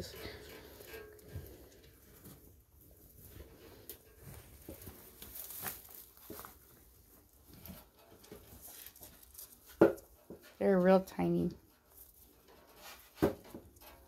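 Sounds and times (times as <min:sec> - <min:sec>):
straw bedding rustling: 0:04.5 - 0:06.8.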